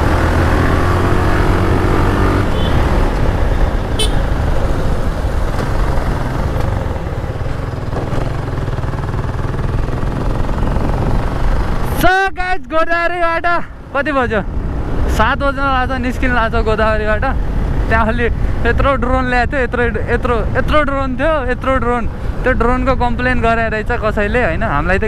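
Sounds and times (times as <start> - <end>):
motorcycle engine running: 0.0 - 11.8
wind rushing over microphone: 0.0 - 12.0, 13.8 - 25.0.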